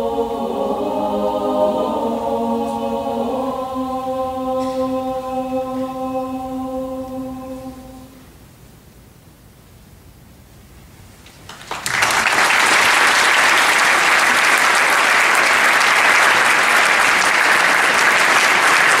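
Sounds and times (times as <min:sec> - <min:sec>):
audience applause: 0:11.5 - 0:19.0.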